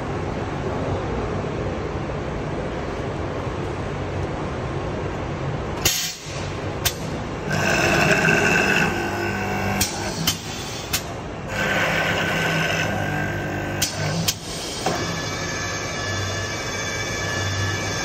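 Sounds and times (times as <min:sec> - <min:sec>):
spindle motor whining: 0:06.8 - 0:18.0.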